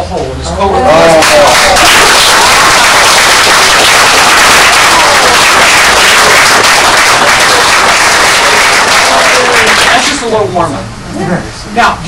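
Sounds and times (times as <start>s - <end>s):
audience applauding: 1.0s - 10.3s.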